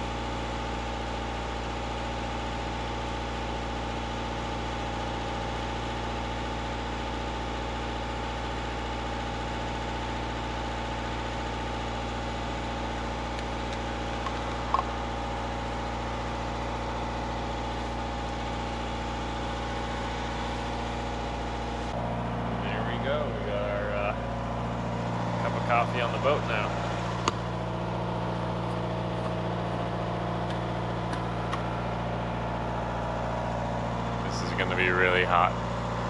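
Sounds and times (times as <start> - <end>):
boat engine running: 11.0 - 36.0.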